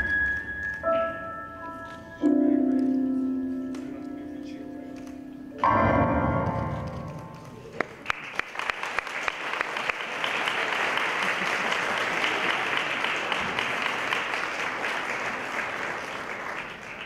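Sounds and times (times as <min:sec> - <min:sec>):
digital piano chord: 0:00.0 - 0:07.6
audience applauding: 0:07.4 - 0:17.0.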